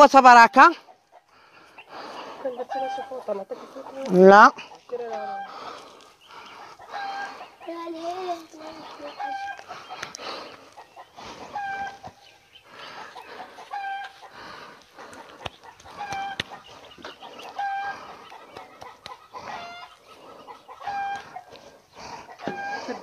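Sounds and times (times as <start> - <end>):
chicken clucking: 0.8 - 23.0.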